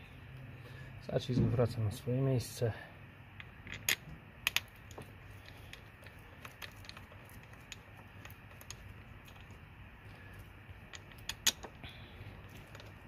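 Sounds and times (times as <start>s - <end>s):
metal parts and tools clicking: 3.4s - 13.0s.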